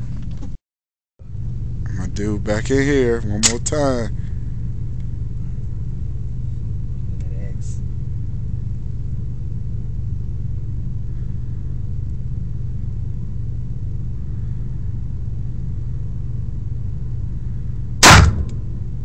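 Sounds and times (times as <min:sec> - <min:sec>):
low hum: 0:01.2 - 0:19.0
handgun shot: 0:18.0 - 0:18.6.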